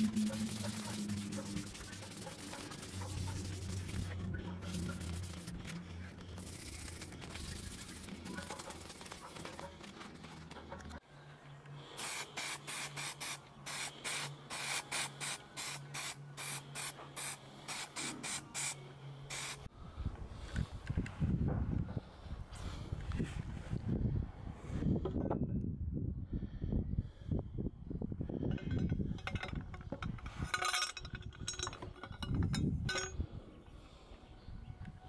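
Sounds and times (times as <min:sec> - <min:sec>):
spray paint can hissing: 0:00.0 - 0:09.6, 0:12.0 - 0:19.7
low hum: 0:00.0 - 0:12.0.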